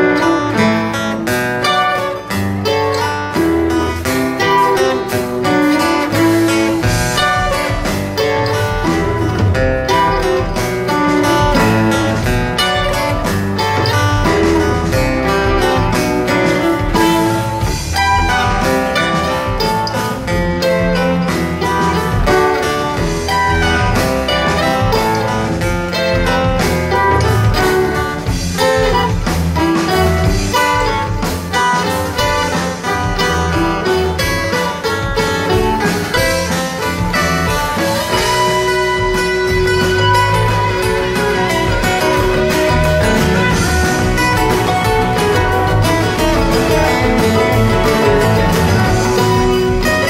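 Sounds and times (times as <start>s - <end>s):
live band playing: 0.0s - 50.0s
steady drum beat: 0.0s - 50.0s.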